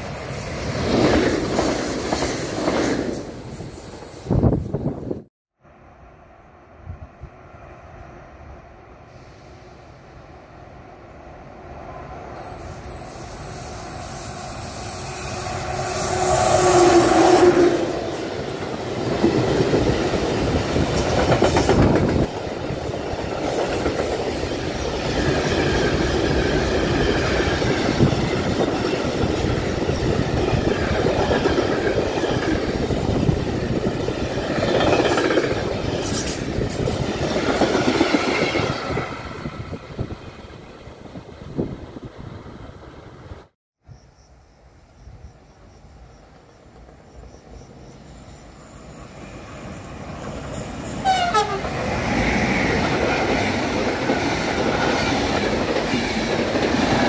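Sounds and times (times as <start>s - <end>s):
locomotive passing loudly: 11.8s - 41.2s
train wheels clickety-clack: 18.2s - 38.8s, 50.1s - 57.0s.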